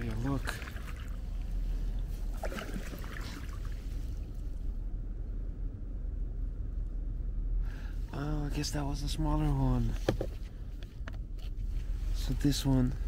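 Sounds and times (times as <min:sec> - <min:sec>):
paddle splashes: 0:00.0 - 0:04.2
steady low rumble: 0:00.0 - 0:13.0.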